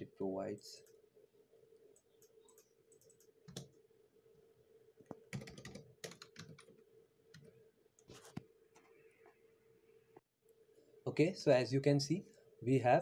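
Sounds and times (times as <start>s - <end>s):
faint steady hum: 0.0s - 13.0s
typing on computer keyboard: 2.0s - 3.8s, 5.2s - 7.5s.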